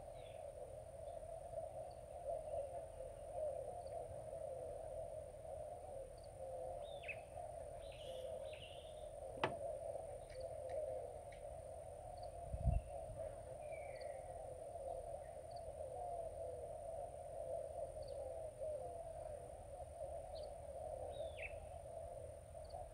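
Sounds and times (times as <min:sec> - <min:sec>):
small birds chirping: 0:00.0 - 0:16.6, 0:17.2 - 0:22.9
low thump: 0:09.4 - 0:09.6.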